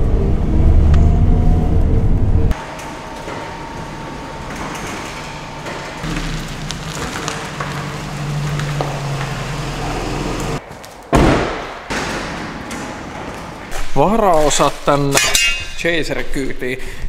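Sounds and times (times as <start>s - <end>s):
garage door rolling open: 0.0s - 10.6s, 11.7s - 14.0s
pickup engine running low: 5.5s - 10.6s.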